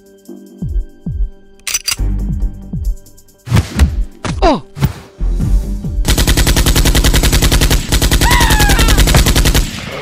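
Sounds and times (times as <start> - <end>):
automatic gunfire: 6.1 - 9.8.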